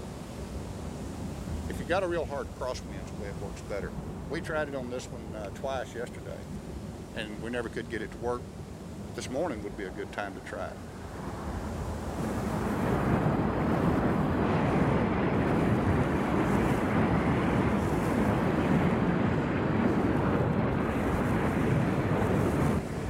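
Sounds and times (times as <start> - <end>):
flame jet roaring: 10.8 - 23.0.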